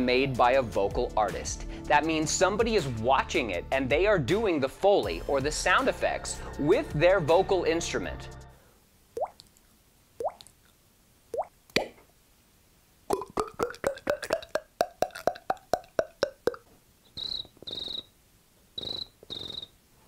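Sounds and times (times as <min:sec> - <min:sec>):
beatboxing mouth pops: 0:11.4 - 0:12.1, 0:13.1 - 0:18.0, 0:18.8 - 0:19.7
mouth hisses: 0:17.2 - 0:18.1, 0:18.8 - 0:19.8.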